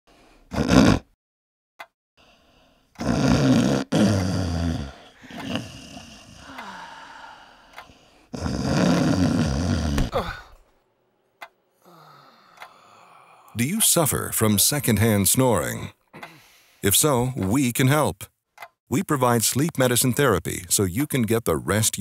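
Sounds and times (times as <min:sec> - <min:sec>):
man snoring heavily: 0:00.5 - 0:01.2, 0:03.0 - 0:10.6.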